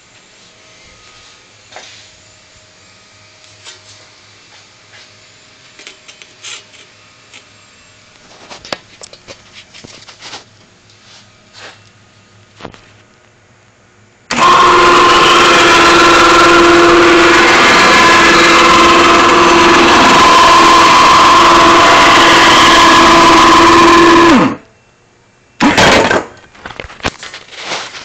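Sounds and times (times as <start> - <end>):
electric motor whining: 14.3 - 24.7.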